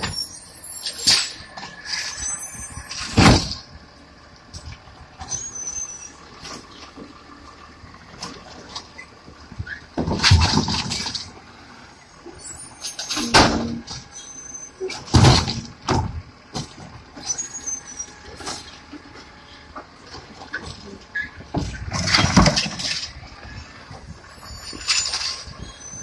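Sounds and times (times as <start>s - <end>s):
high squeals: 0.0s - 3.4s, 5.3s - 6.2s, 12.3s - 14.9s, 17.2s - 18.4s, 24.3s - 26.0s
trash carts banging and clattering: 0.0s - 3.8s, 4.4s - 11.5s, 12.3s - 26.0s
truck engine running: 0.0s - 26.0s.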